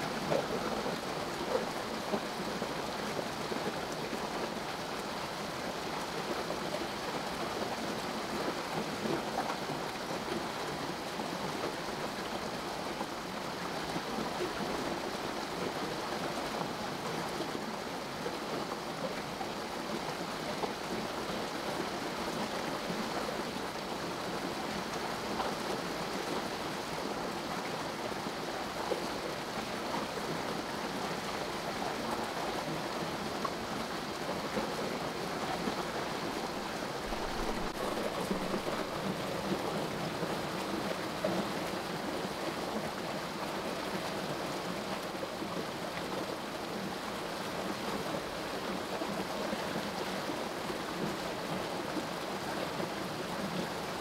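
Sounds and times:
waterfall splashing on rocks: 0.0s - 54.0s.

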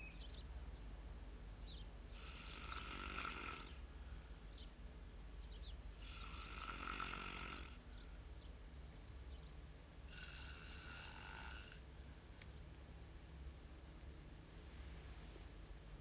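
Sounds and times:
man snoring: 2.2s - 3.7s, 6.0s - 7.8s, 10.1s - 11.8s.

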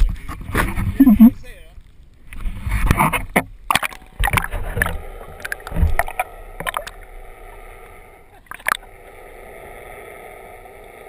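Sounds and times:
faint underwater clicks: 1.8s - 9.0s
water sloshing and splashing: 2.3s - 7.2s, 8.4s - 8.8s
muffled underwater sound: 4.2s - 11.0s.

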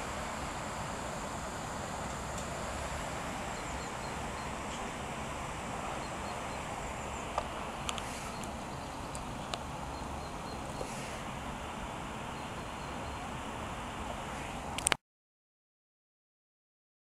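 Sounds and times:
birds chirping: 3.3s - 14.3s.

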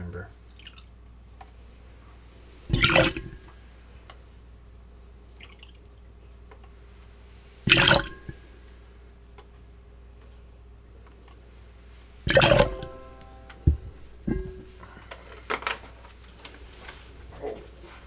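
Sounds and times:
liquid pouring into cups: 0.5s - 0.9s, 2.7s - 3.4s, 7.7s - 8.4s, 12.3s - 13.0s.

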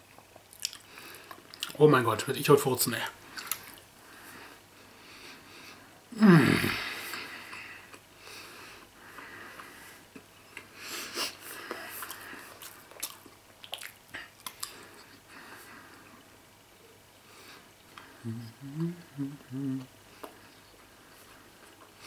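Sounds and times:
chewing clicks and mouth noises: 0.1s - 1.8s, 3.3s - 3.9s, 11.7s - 15.2s
man's throaty vocal sound: 18.2s - 19.9s.

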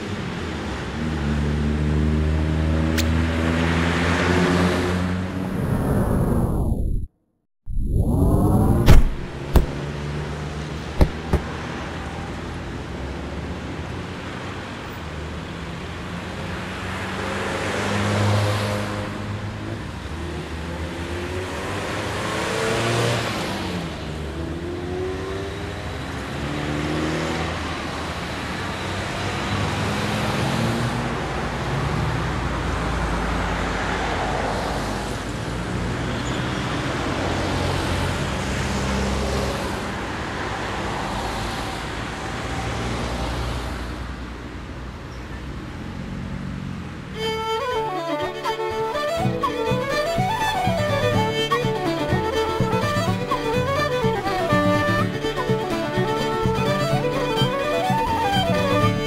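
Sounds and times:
cars passing: 0.0s - 7.1s, 8.2s - 59.0s
road noise rumble: 0.0s - 7.1s, 7.7s - 59.0s
sharp clicks: 8.8s - 9.8s.

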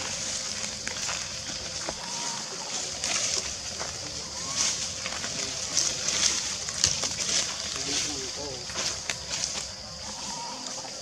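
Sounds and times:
dry leaves rustling and crackling: 0.0s - 11.0s
steady high-pitched drone: 0.0s - 11.0s
faint whistle-like calls: 1.8s - 3.4s, 4.0s - 6.4s, 10.0s - 11.0s.

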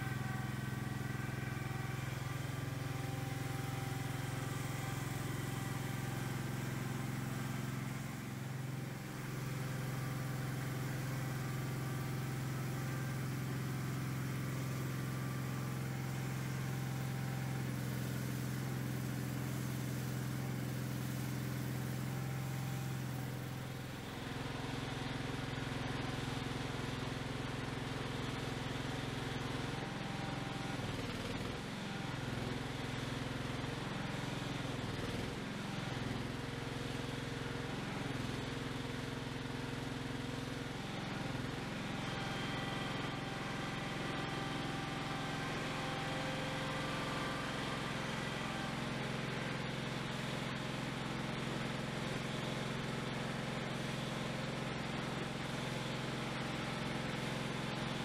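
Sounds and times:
garden tractor engine running: 0.0s - 58.0s.

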